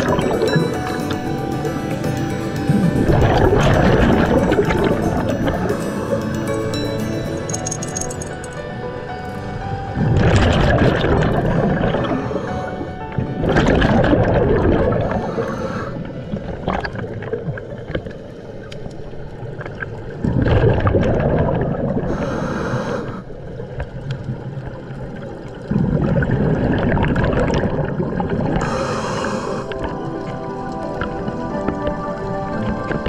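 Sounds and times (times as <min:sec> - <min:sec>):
exhaled air bubbling underwater: 0:00.0 - 0:07.5, 0:09.6 - 0:33.0
regulator inhale hiss: 0:15.2 - 0:16.1, 0:22.1 - 0:23.4, 0:28.6 - 0:29.8.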